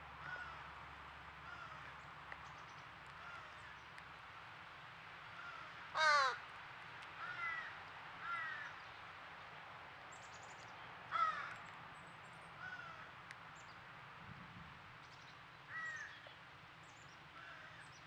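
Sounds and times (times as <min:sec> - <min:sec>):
fledgling crow begging cries: 0:05.4 - 0:06.4.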